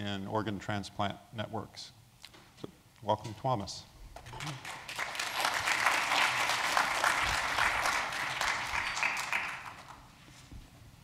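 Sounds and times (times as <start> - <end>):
audience applauding: 4.3 - 10.1.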